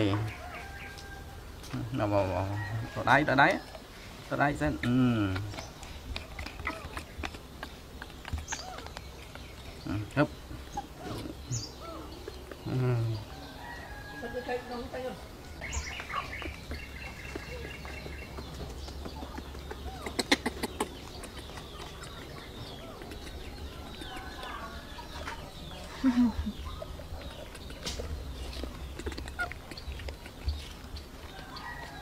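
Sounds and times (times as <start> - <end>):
animal chirping calls: 15.7 - 18.1, 19.1 - 25.3, 26.1 - 30.8.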